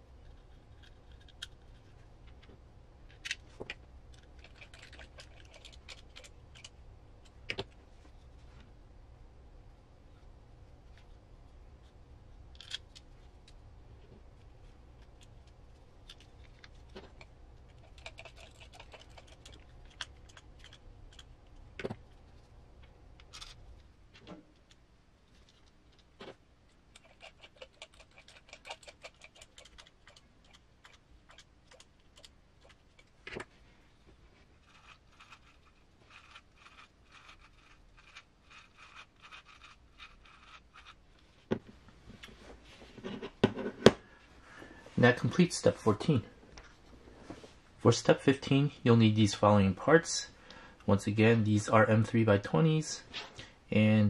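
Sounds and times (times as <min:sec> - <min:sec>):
small parts clicking and rattling: 0:00.2 - 0:02.5, 0:03.1 - 0:07.8, 0:12.5 - 0:13.6, 0:15.0 - 0:33.5, 0:34.6 - 0:41.0.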